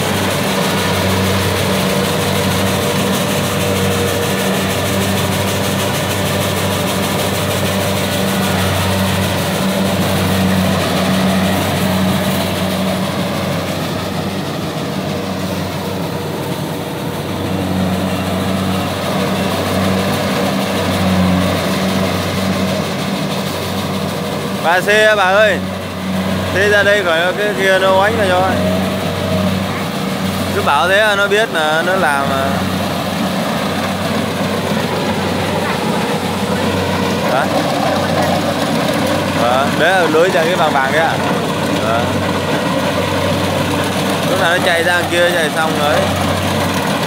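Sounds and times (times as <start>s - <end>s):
combine harvester diesel engine drone: 0.0s - 47.0s.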